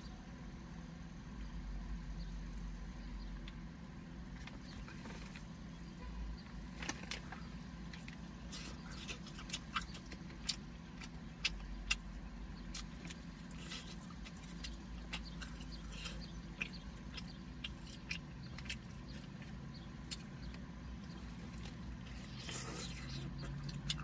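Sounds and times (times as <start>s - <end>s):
low hum inside a car: 0.0s - 24.0s
person chewing food: 6.9s - 24.0s.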